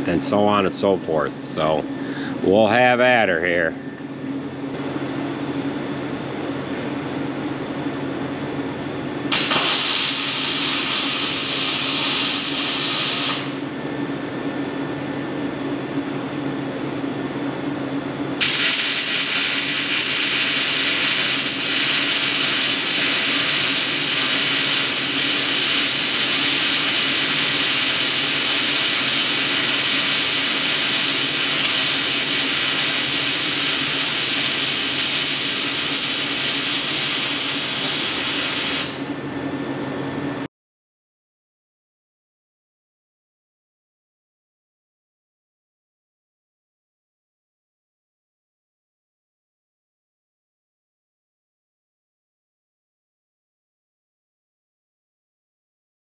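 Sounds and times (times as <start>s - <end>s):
low steady hum: 0.0s - 10.0s
arc welding hiss: 9.3s - 13.6s, 18.4s - 39.0s.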